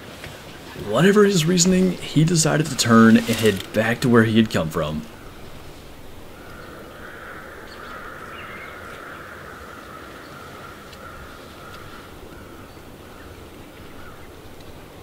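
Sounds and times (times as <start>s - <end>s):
faint steady hiss: 0.0s - 15.0s
faint ticks: 10.9s - 12.5s.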